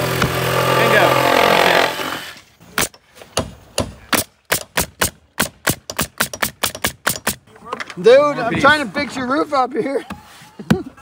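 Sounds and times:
pneumatic nailer firing nails: 0:00.0 - 0:07.4.

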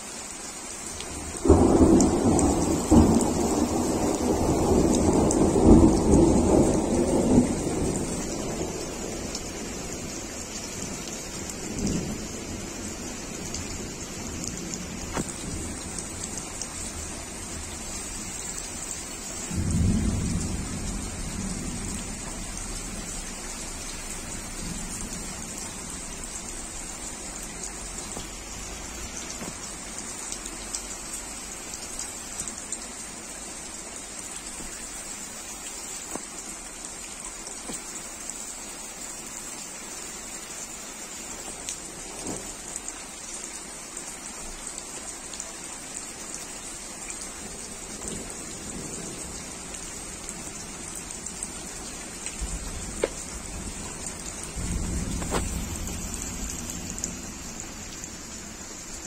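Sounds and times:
heavy rain splashing: 0:00.0 - 0:59.0
thunder rumbling: 0:01.2 - 0:18.2, 0:19.4 - 0:29.6, 0:47.4 - 0:58.4.

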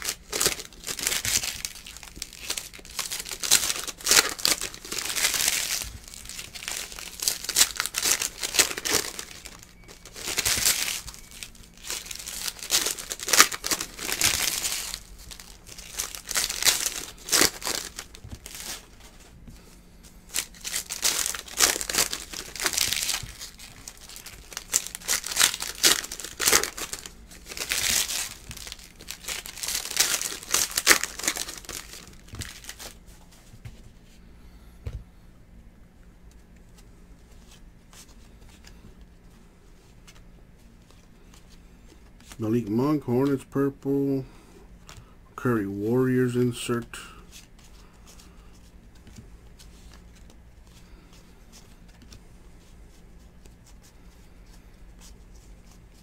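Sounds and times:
plastic wrappers crinkling: 0:00.0 - 0:19.4, 0:20.2 - 0:33.1.

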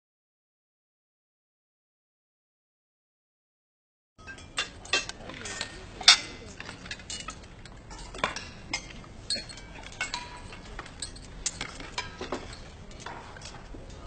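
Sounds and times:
utensils clinking on plates: 0:04.2 - 0:14.0.

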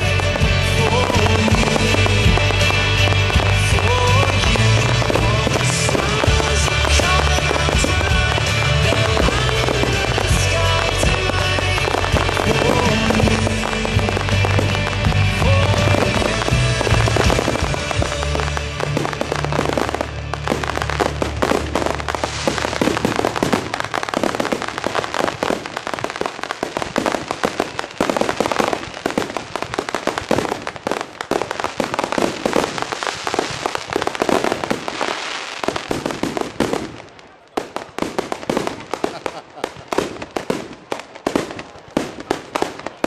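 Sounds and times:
music with low bass: 0:00.0 - 0:26.2
fireworks bangs and crackling: 0:00.0 - 0:43.0.

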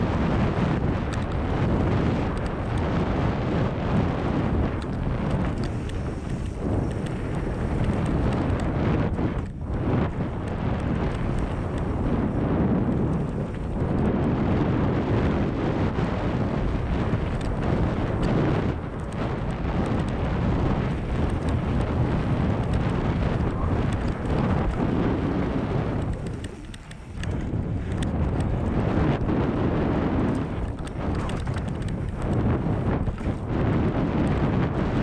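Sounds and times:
bike tyres rolling on dirt trail: 0:00.0 - 0:35.0
wind rushing over microphone: 0:00.0 - 0:35.0
small clicks and rattles: 0:00.3 - 0:02.9, 0:04.3 - 0:14.2, 0:15.9 - 0:29.6, 0:30.2 - 0:34.4.

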